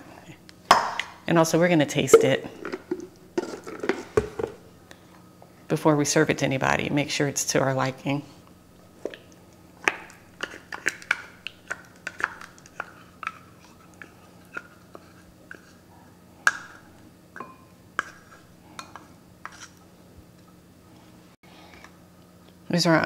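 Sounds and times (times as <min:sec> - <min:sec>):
spoon tapping cup and bowl: 0:02.1 - 0:02.5.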